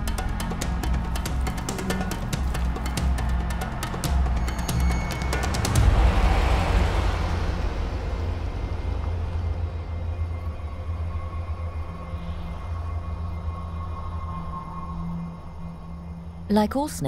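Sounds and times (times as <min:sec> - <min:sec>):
car driving past: 0:05.1 - 0:10.4
steady low rumble: 0:05.5 - 0:16.9.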